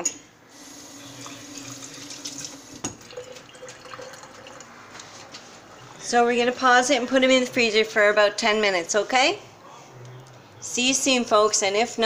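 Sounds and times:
tap water running into sink: 0.6 - 4.7.

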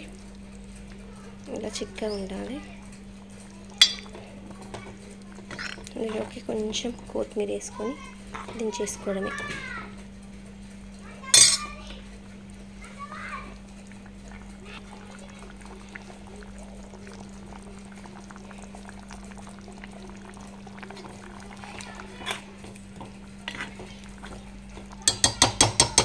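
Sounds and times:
curry bubbling in a pot: 0.0 - 26.0
ladle striking metal pot: 3.8 - 4.1, 11.4 - 11.7, 25.0 - 26.0.

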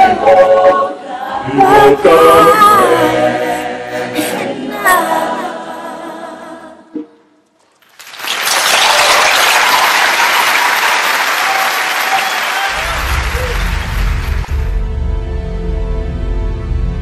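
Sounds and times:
choir singing: 0.0 - 7.1
audience applause: 7.8 - 14.7.

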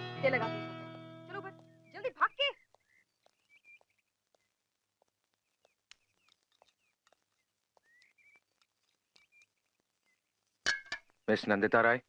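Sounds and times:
faint bird chirps: 1.4 - 4.6, 5.4 - 11.3.

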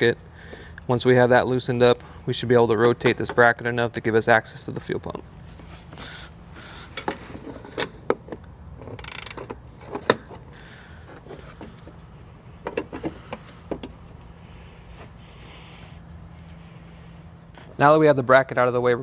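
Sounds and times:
ratchet clicks: 8.9 - 10.2.

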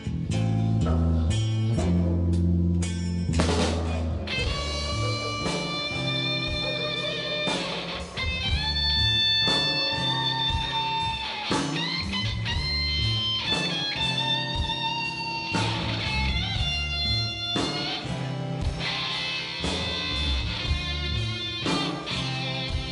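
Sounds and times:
live rock band playing: 0.0 - 22.9
electric guitar sustained notes: 3.3 - 22.9.

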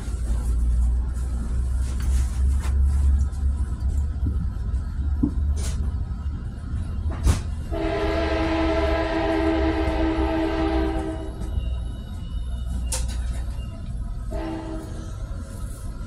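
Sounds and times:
train car rumbling: 0.0 - 16.0
train horn: 7.6 - 11.6, 14.2 - 15.3.

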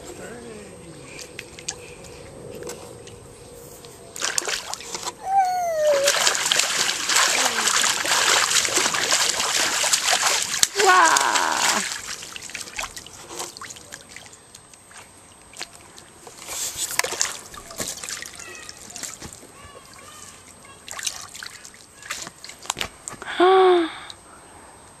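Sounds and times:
water trickling: 4.2 - 22.8
water splashing in paddling pool: 4.2 - 23.0.

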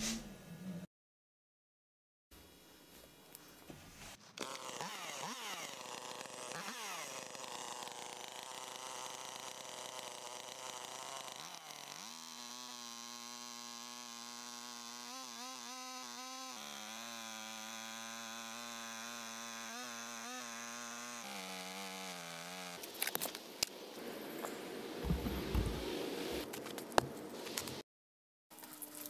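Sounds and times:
chainsaw engine revving: 4.4 - 22.8
chainsaw cutting log: 4.4 - 23.2, 25.0 - 26.5.

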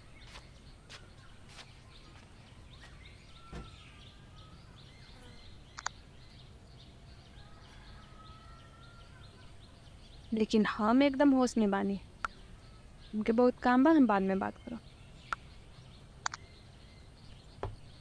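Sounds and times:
small birds chirping: 0.0 - 18.0
soft thump: 3.4 - 3.8, 17.6 - 17.8
sharp double click: 16.2 - 16.4.

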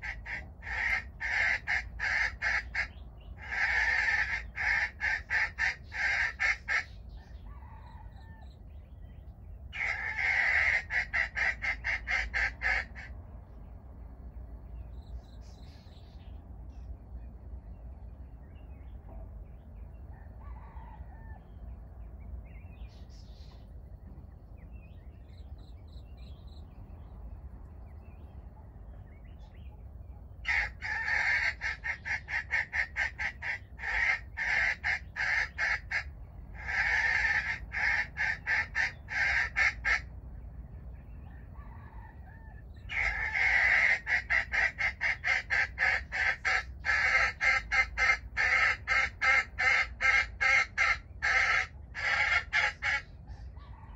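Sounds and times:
jungle fowl cackling: 0.0 - 8.7, 9.7 - 13.2, 20.1 - 21.5, 30.4 - 40.1, 41.2 - 53.9.

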